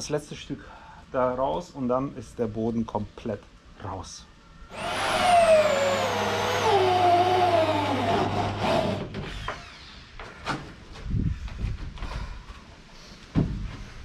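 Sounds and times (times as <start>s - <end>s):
cordless drill motor whine: 4.7s - 10.0s
short knocks and thuds: 13.3s - 13.9s.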